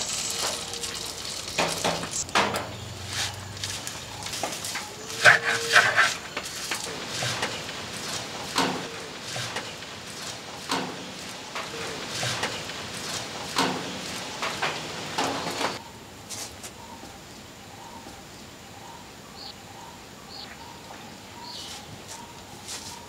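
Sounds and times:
metal spoon scraping clay pot: 4.9s - 6.3s
faint bird chirps: 16.7s - 23.0s.

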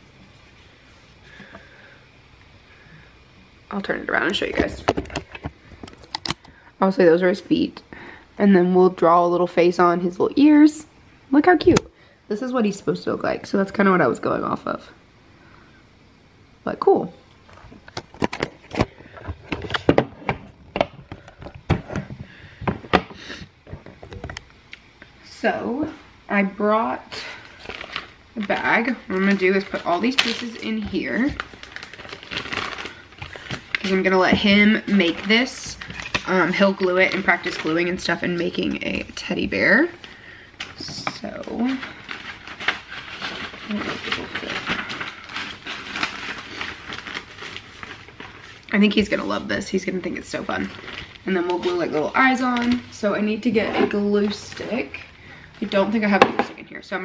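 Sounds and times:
plastic bag crinkling: 27.1s - 56.2s.

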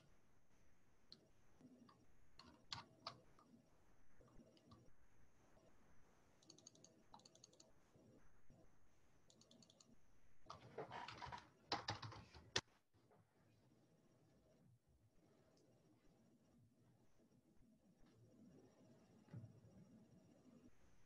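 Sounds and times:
faint keyboard typing: 1.1s - 5.7s, 6.3s - 8.6s, 9.2s - 12.7s.

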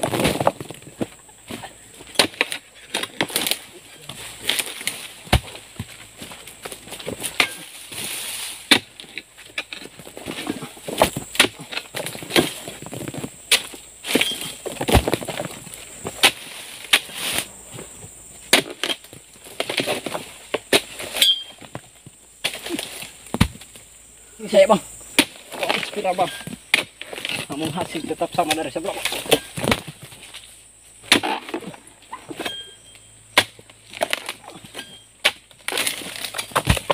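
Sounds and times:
palm fronds rustling: 0.0s - 32.6s, 33.4s - 36.9s
chisel blade chopping palm fronds: 2.1s - 5.6s, 7.2s - 9.8s, 31.0s - 31.7s, 33.3s - 36.9s.

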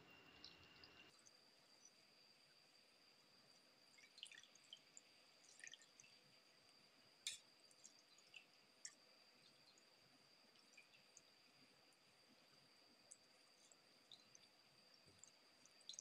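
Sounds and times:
faint high whine: 0.0s - 4.2s
water dripping and squelching: 3.9s - 11.5s, 13.0s - 16.0s.

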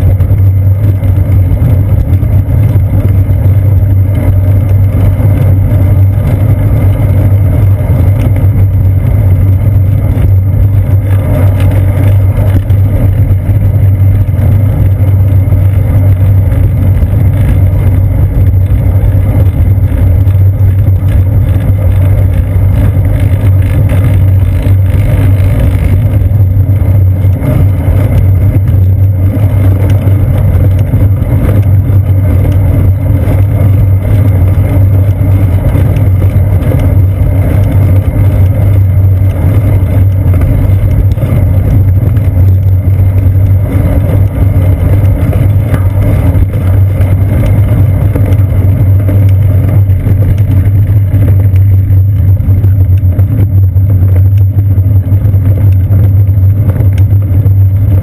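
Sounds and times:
bicycle rumbling on paved path: 0.0s - 58.0s.

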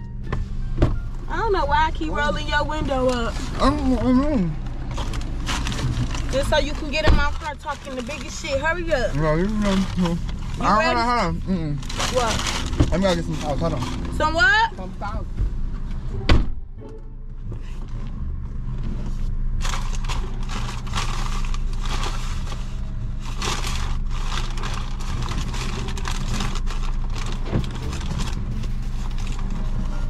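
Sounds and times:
low car hum: 0.0s - 30.0s
paper bag rustling: 4.6s - 11.2s, 11.8s - 14.2s, 19.6s - 30.0s.

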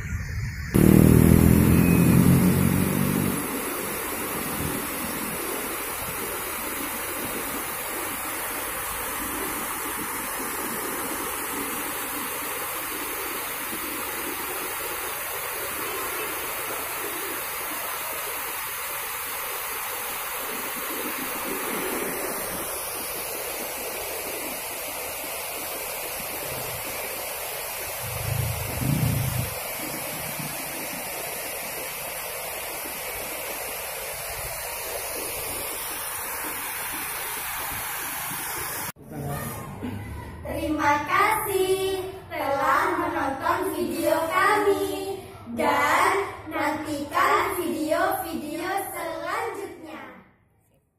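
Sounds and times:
river water rushing over weir: 0.8s - 38.9s
low rumble: 28.0s - 29.6s.

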